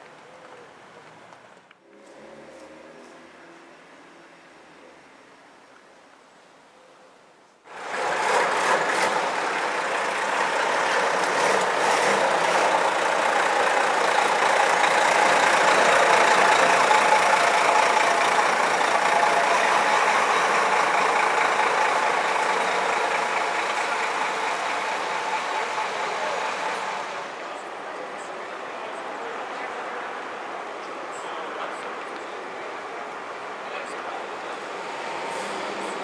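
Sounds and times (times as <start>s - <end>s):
bus engines running: 7.7s - 36.0s.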